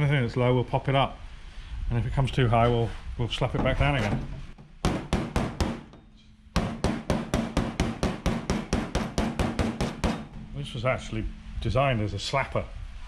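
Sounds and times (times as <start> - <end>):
file slapping metal panel: 3.6 - 11.4.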